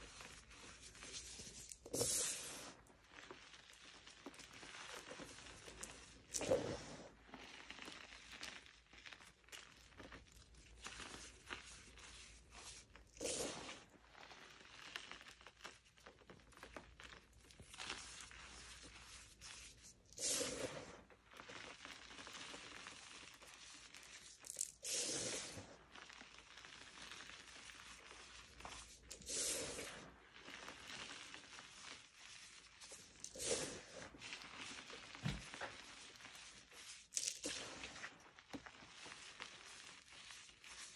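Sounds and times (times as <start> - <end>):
chalk crunching and rustling: 0.0 - 40.9
hand swishing chalk: 0.2 - 2.8, 18.0 - 21.0, 24.8 - 25.7, 28.7 - 30.1, 33.2 - 34.1.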